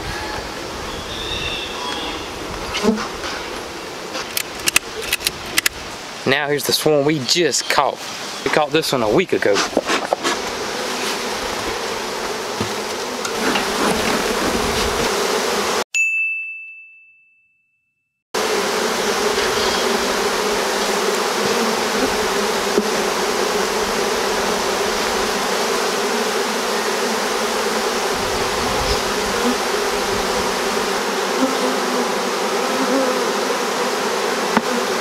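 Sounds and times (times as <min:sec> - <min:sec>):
honeybees buzzing: 0:00.0 - 0:05.6, 0:08.2 - 0:15.8, 0:18.4 - 0:35.0.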